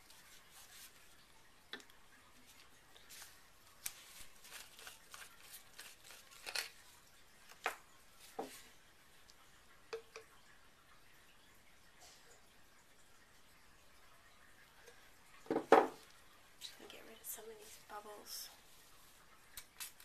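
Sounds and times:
bottles tapping on wooden table: 15.5 - 16.0.

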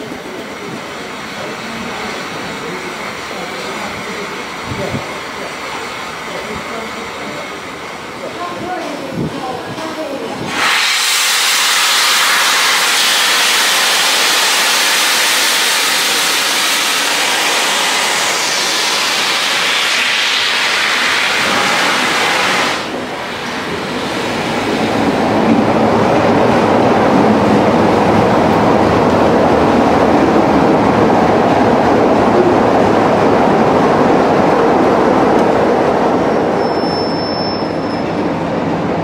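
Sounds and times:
diesel locomotive engine running: 0.0 - 39.0
steam hissing from locomotive: 10.3 - 25.2.

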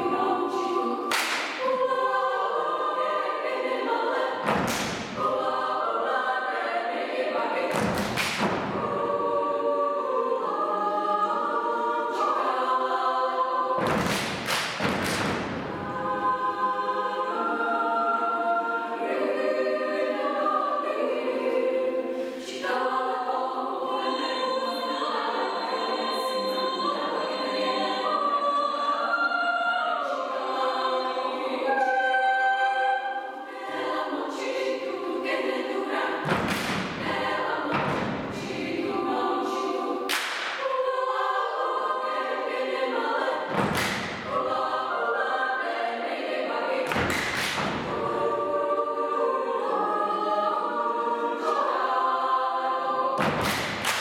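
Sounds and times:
women's choir singing a cappella: 0.0 - 54.0
body-percussion hits: 4.4 - 5.2, 7.7 - 8.9, 13.8 - 15.9, 36.2 - 38.5, 43.5 - 44.4, 46.9 - 48.0, 53.2 - 54.0.

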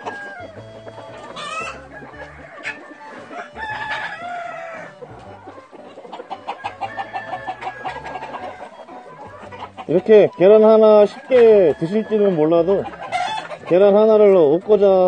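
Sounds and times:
rooster crowing: 0.0 - 5.1, 6.4 - 9.3, 11.0 - 13.6
chickens clucking: 0.0 - 15.0.

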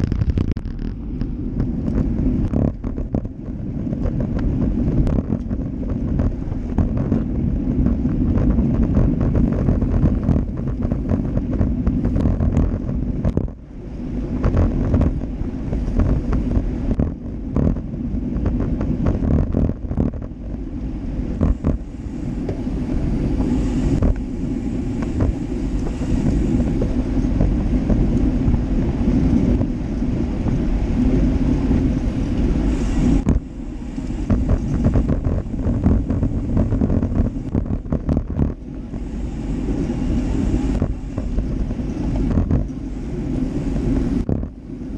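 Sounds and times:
road rumble: 0.0 - 44.9
wind buffeting microphone: 0.0 - 44.9.

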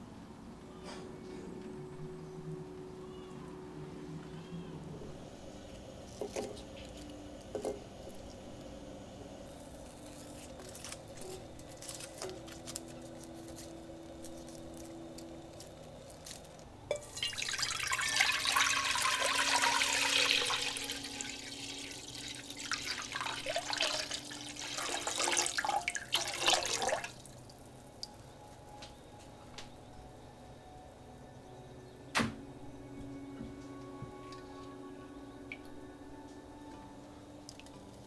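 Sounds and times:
water pouring into saucepan: 16.9 - 27.6.

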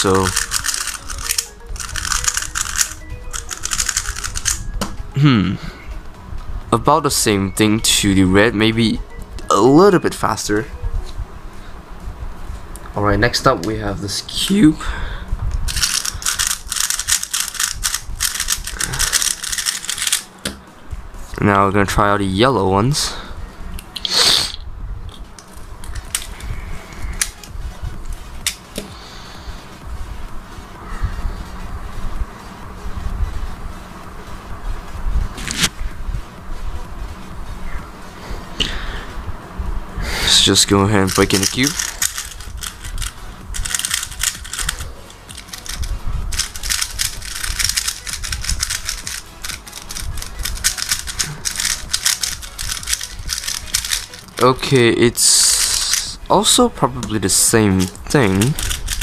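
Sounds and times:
plastic cube pieces clicking: 0.2 - 4.6, 15.7 - 20.3, 41.1 - 54.4, 57.8 - 59.0.

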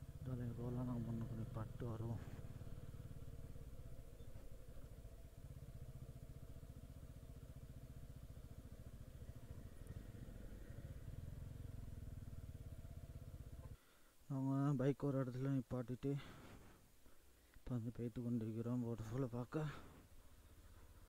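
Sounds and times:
motorcycle engine running: 0.0 - 13.8.

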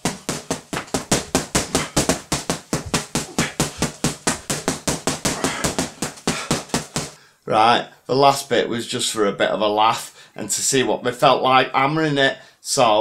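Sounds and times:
boxing gloves hitting punch bag: 0.0 - 7.2.

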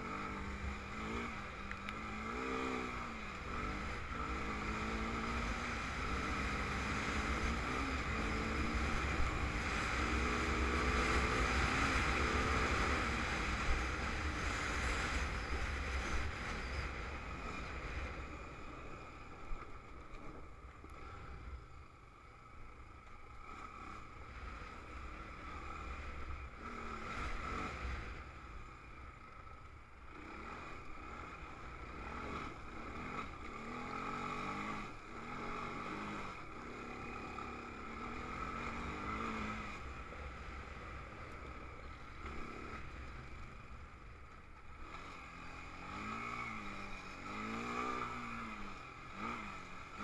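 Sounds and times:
quad engine revving: 31.9 - 39.9, 44.8 - 50.0.

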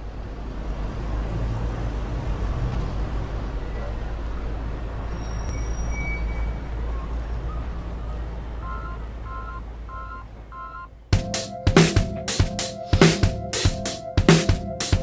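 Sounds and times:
street traffic rumbling: 0.0 - 15.0
two-tone electronic beeps: 5.5 - 11.0
loud drums: 11.2 - 15.0.

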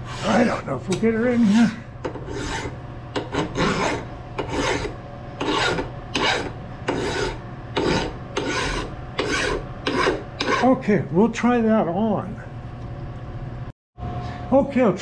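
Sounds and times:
hand file rasping on metal: 0.0 - 0.6, 1.2 - 10.8.

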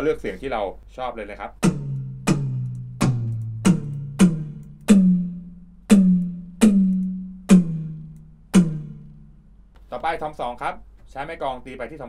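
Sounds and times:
electronic drum tom hits: 1.6 - 9.4.

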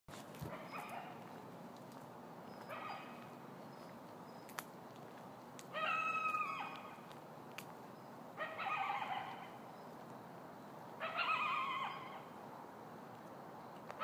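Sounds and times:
coyote howling: 5.7 - 7.0, 8.4 - 9.6, 11.0 - 12.4.

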